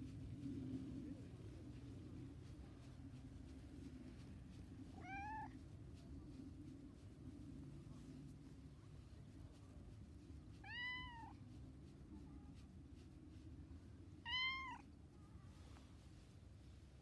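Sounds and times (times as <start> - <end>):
cat meowing: 5.0 - 5.6, 10.6 - 11.4, 14.2 - 14.8.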